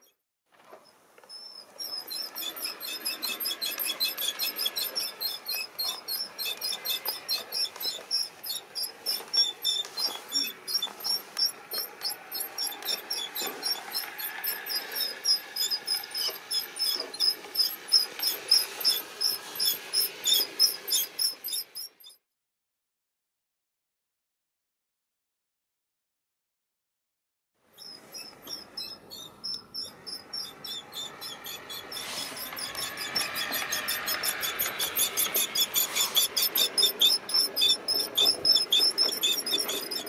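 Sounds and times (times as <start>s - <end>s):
train wheels clicking over rails: 2.0s - 21.9s, 28.3s - 40.0s.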